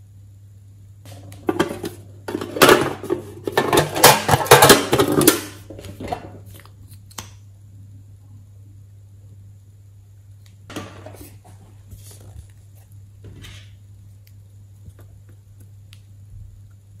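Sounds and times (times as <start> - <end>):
metal tin clattering: 1.5 - 6.3.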